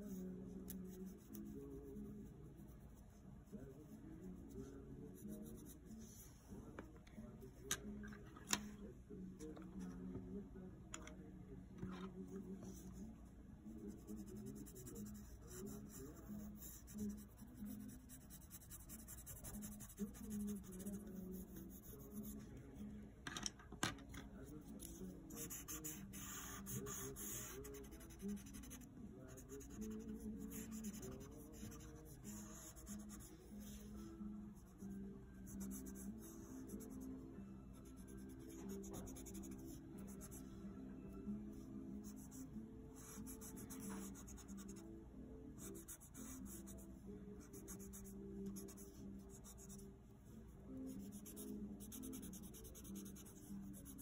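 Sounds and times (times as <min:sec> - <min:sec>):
pencil scratching on paper: 0:13.8 - 0:22.3, 0:24.8 - 0:33.8, 0:37.8 - 0:40.4, 0:43.0 - 0:44.7, 0:47.4 - 0:49.8, 0:50.9 - 0:54.0.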